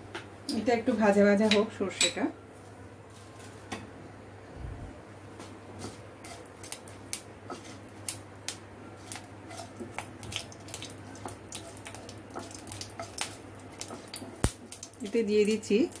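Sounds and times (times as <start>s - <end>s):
mustard seeds popping in hot oil: 6.2s - 16.0s.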